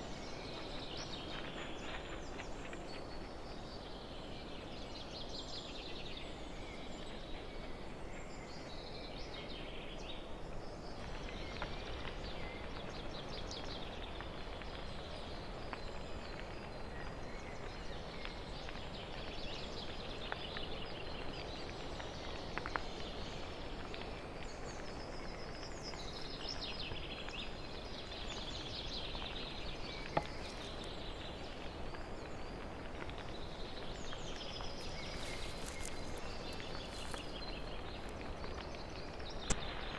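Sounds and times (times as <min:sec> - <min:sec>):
steady hiss: 0:18.0 - 0:39.9.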